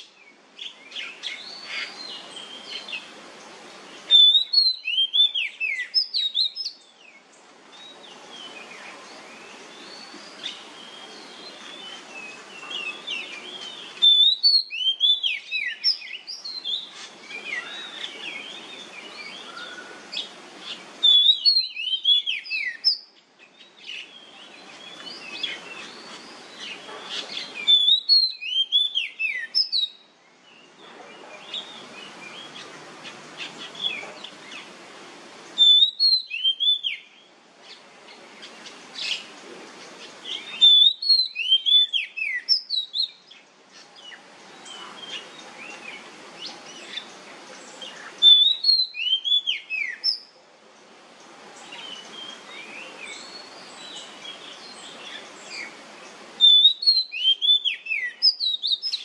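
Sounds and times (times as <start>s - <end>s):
background hiss: 0.0s - 59.0s
bird singing whistled phrases: 4.1s - 6.8s, 12.7s - 18.6s, 21.0s - 23.1s, 27.1s - 30.0s, 35.6s - 37.2s, 40.3s - 43.2s, 48.2s - 50.3s, 56.4s - 59.0s.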